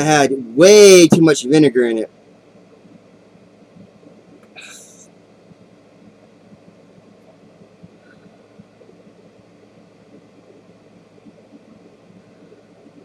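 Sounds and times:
low room hum with hiss: 0.0s - 13.0s.

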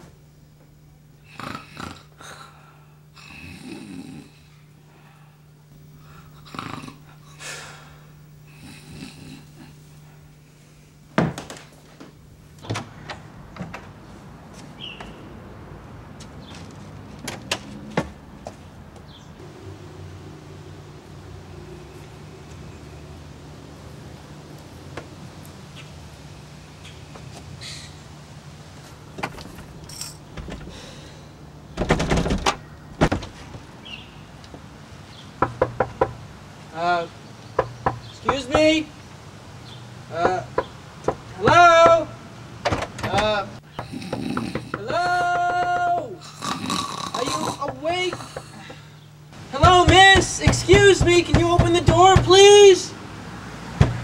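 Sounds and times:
loud door thud: 31.8s - 33.4s, 49.6s - 52.6s, 53.8s - 54.0s.

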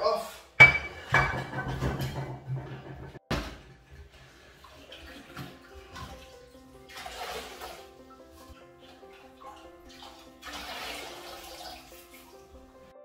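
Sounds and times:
faint background music: 0.0s - 13.0s
water sloshing and dripping: 2.9s - 12.9s.

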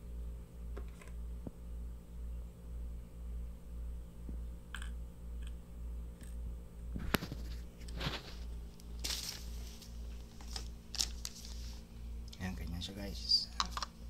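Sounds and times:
low pulsing hum: 0.0s - 14.0s
rustling: 7.0s - 11.9s.

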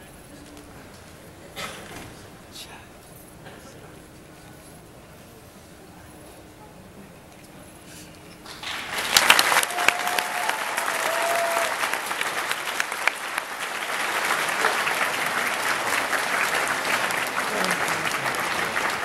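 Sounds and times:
audience applause: 8.4s - 19.0s.

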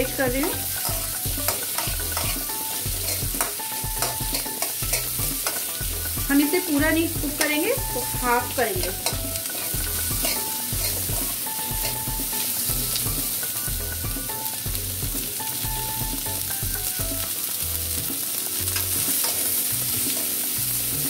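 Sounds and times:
onions sizzling in oil: 0.0s - 21.0s
metal spoon scraping pan: 0.7s - 6.2s, 8.8s - 12.1s.

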